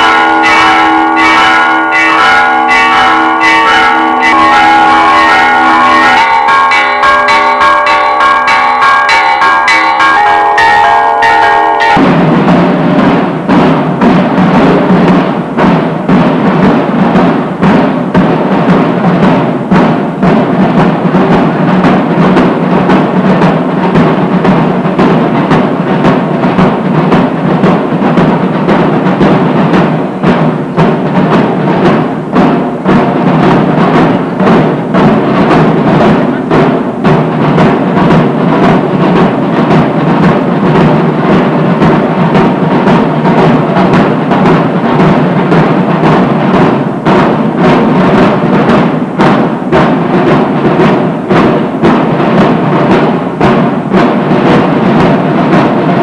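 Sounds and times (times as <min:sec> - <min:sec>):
bells ringing: 0:00.0 - 0:12.4
rapid drumming music: 0:00.0 - 0:56.0.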